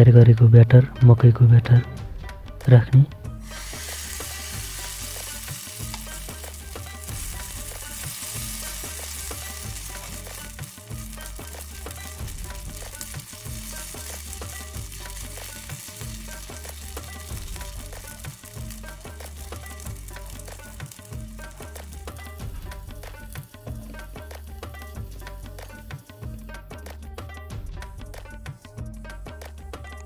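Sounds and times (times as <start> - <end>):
batter sizzling in hot oil: 3.4 - 27.0.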